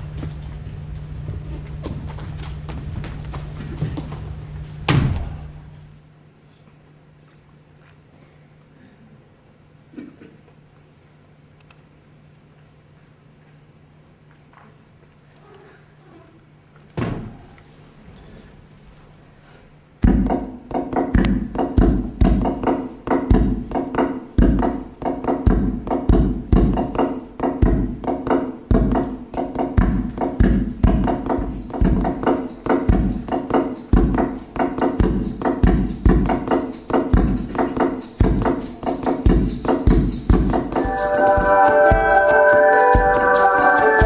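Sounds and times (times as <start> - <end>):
percussion-driven music: 20.1 - 44.0.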